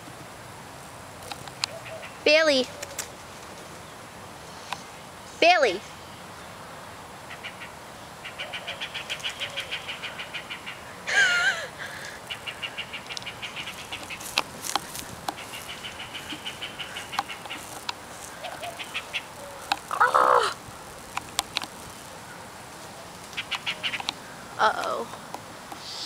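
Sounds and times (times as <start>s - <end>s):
bird alarm calls: 7.3s - 10.9s, 12.0s - 20.5s, 23.3s - 24.4s
sharp clicks: 13.0s - 16.4s, 20.9s - 22.0s, 23.3s - 24.2s
harsh wavering bird call: 15.4s - 20.6s.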